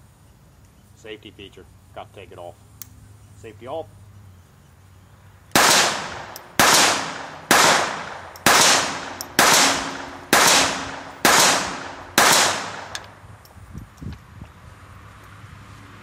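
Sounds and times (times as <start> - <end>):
pistol shots with echo: 5.6 - 13.1.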